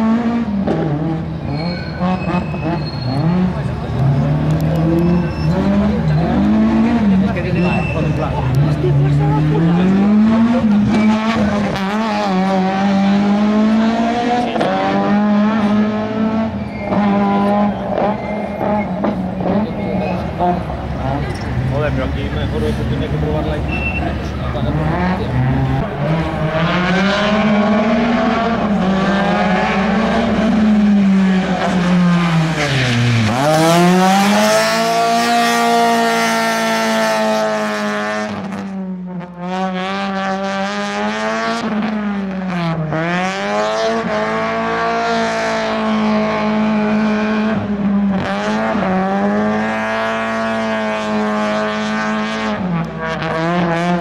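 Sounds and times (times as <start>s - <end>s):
car engine revving hard: 0.0s - 54.0s
tyre squeal: 1.4s - 3.5s, 4.8s - 6.5s, 7.5s - 8.4s, 16.5s - 19.0s, 23.6s - 24.3s.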